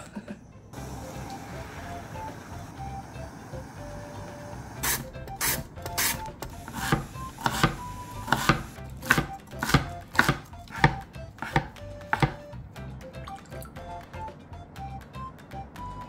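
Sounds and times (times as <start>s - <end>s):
knife chopping on cutting board: 4.9s - 12.5s.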